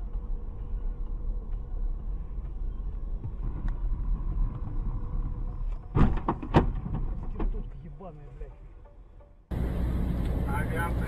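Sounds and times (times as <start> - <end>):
car driving rumble: 0.0 - 11.0
car crash bang: 5.9 - 7.5.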